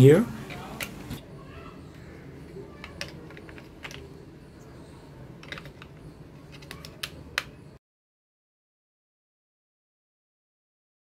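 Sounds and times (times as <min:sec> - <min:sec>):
batteries clicking into plastic compartment: 0:02.8 - 0:04.1, 0:05.4 - 0:07.6.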